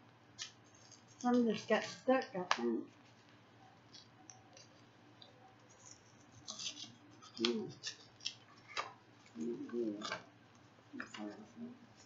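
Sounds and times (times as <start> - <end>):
paper pages rustling: 0.4 - 2.3, 5.6 - 10.2.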